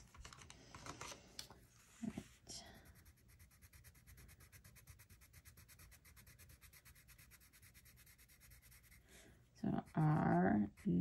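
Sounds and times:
pencil scribbling on paper: 2.8 - 11.0.

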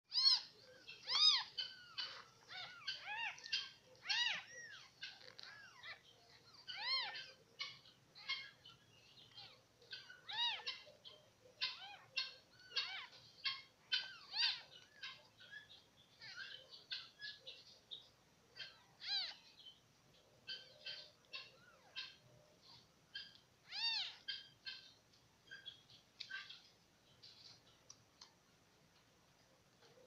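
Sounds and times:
kittens mewing: 0.1 - 8.6, 18.6 - 19.5, 20.5 - 25.0.

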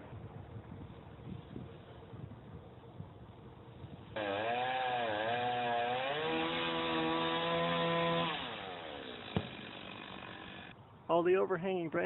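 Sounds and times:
chainsaw cutting branches: 4.1 - 10.8
sharp knock: 9.3 - 9.6.

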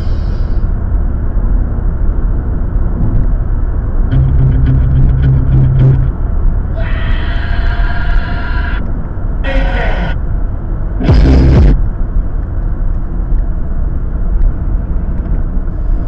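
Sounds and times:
steady low hum: 0.0 - 6.9, 8.7 - 16.0
car road and engine rumble: 0.0 - 16.0
steady tones: 4.1 - 6.8, 10.9 - 11.9.

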